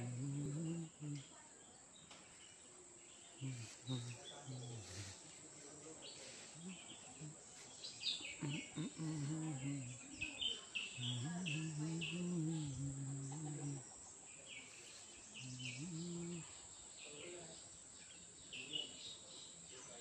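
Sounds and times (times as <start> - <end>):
low steady hum: 0.0 - 1.3
insects droning: 0.0 - 20.0.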